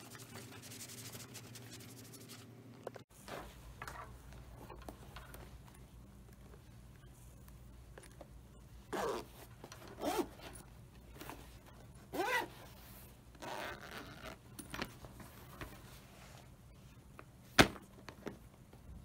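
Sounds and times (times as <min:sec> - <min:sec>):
zipper pulled open and shut: 0:08.9 - 0:10.6, 0:12.1 - 0:14.5.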